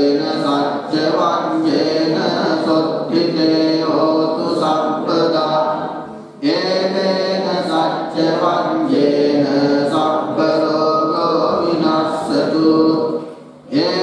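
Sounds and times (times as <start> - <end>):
monk chanting into microphone: 0.0 - 14.0.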